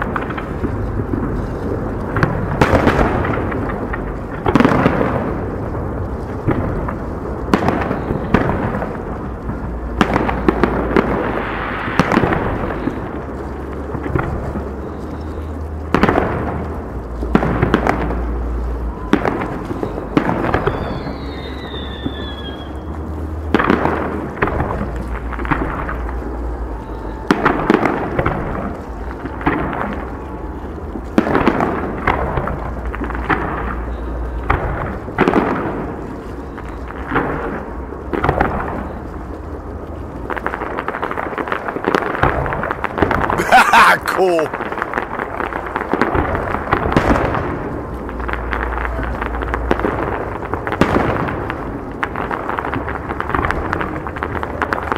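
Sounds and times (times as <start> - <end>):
firework shells booming: 0.0 - 36.0
falling firework whistle: 7.5 - 9.0, 14.2 - 16.3, 17.4 - 23.9, 24.6 - 31.6, 33.6 - 35.0.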